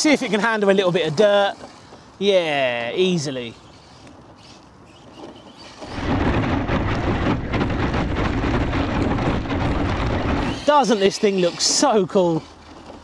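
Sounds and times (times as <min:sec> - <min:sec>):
rc car tyres rumbling on gravel: 0:05.1 - 0:13.0
wind buffeting microphone: 0:05.9 - 0:10.6.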